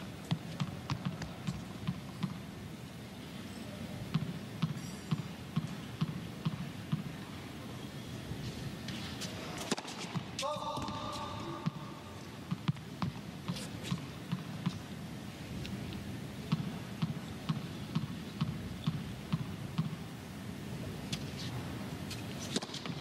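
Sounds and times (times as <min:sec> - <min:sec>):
low arena background noise: 0:00.0 - 0:23.0
tennis ball bouncing on court: 0:00.2 - 0:02.4, 0:04.1 - 0:07.1, 0:09.6 - 0:14.8, 0:16.5 - 0:20.0.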